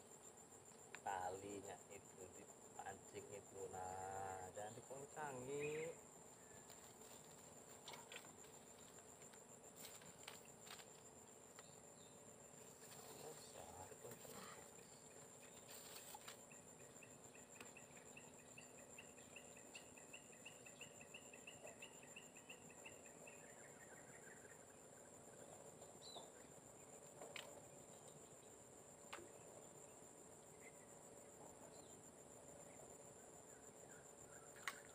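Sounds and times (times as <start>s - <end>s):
insects trilling: 0.0s - 34.9s
light clicks and rustles: 6.6s - 11.8s.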